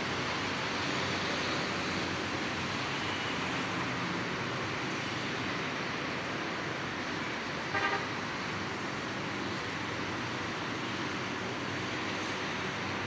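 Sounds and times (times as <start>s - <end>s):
traffic noise: 0.0s - 13.0s
vehicle horn toot: 7.7s - 8.1s.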